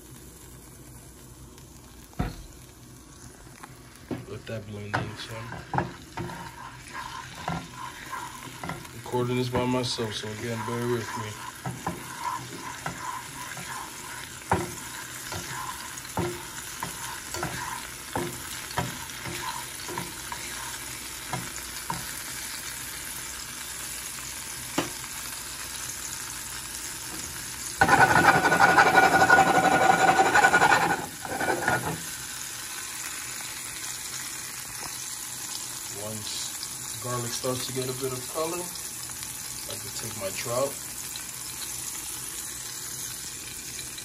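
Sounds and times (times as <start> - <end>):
garlic sizzling in oil: 0.0 - 44.0
spatula scraping and tapping pan: 4.1 - 22.2, 27.1 - 32.1.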